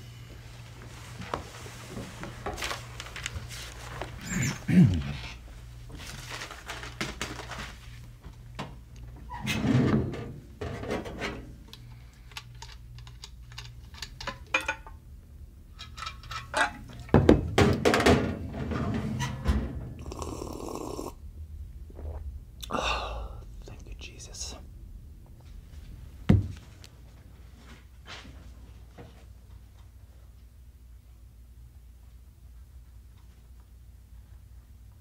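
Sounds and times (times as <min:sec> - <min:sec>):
steady low hum: 0:00.0 - 0:35.0
paper rustling: 0:06.0 - 0:08.0
heavy dull thunks: 0:26.2 - 0:26.7.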